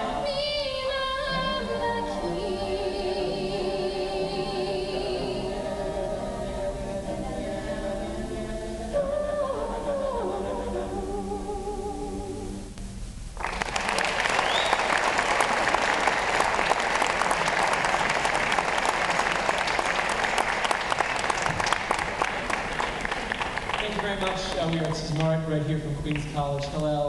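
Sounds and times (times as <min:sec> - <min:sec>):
choir singing a chord: 0:00.0 - 0:12.7
audience applause: 0:13.4 - 0:25.4
rising whistle: 0:14.3 - 0:15.0.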